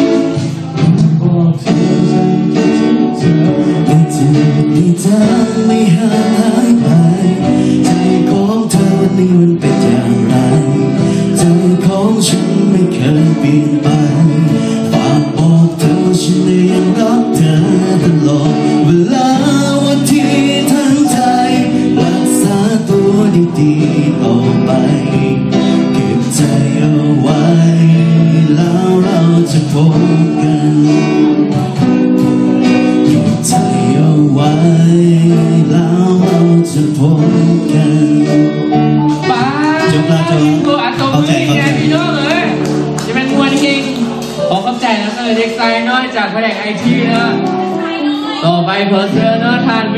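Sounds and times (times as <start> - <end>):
drums: 0.0 - 37.5
guitar: 0.0 - 49.9
man singing into microphone: 0.0 - 49.9.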